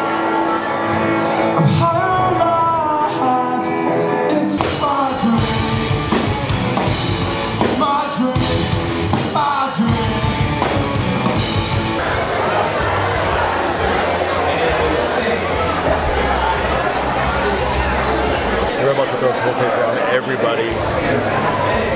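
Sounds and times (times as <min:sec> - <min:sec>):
person singing: 0:00.0 - 0:11.8
bass guitar: 0:00.0 - 0:18.8
drums: 0:00.0 - 0:18.8
electric guitars: 0:00.0 - 0:18.8.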